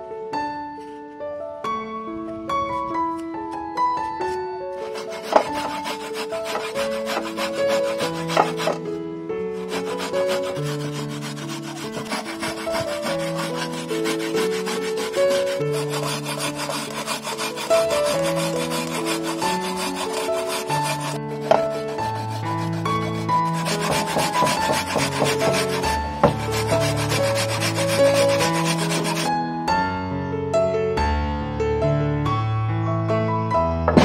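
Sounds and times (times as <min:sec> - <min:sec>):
coconut grating rasping scrape: 0:04.8 - 0:08.9, 0:09.6 - 0:29.3.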